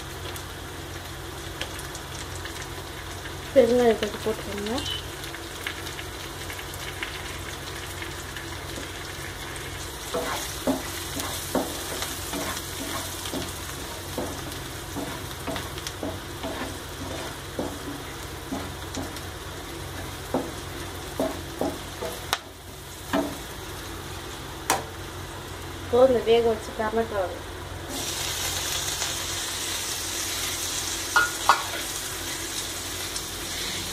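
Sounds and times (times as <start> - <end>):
food sizzling in hot oil: 0.0 - 33.9
spatula scraping a pan: 10.1 - 18.7, 33.5 - 33.9.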